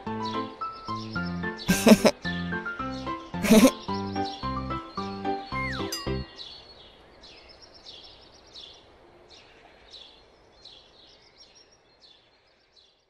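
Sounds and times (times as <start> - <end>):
bird chirping: 2.9 - 13.0.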